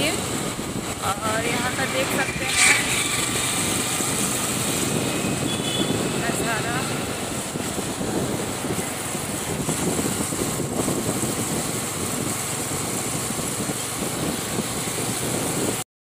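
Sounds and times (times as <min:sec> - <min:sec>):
motorcycle engine cruising: 0:00.0 - 0:15.8
wind noise: 0:00.0 - 0:15.8.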